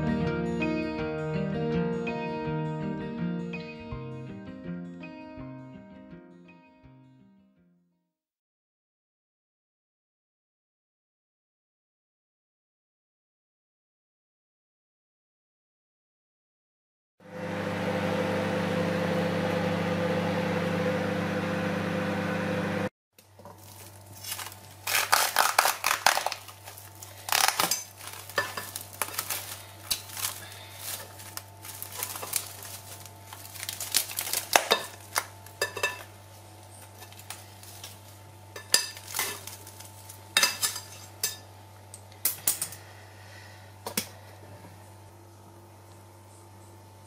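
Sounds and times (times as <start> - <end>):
microwave oven humming: 17.2 - 47.0
cling film crinkling: 23.2 - 35.6, 36.8 - 38.2, 39.0 - 40.3.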